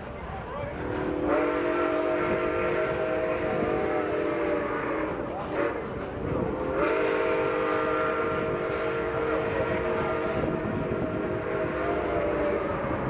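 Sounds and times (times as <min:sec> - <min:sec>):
train cars rumbling on rails: 0:00.0 - 0:13.0
steam locomotive chime whistle: 0:00.8 - 0:06.0, 0:06.6 - 0:13.0.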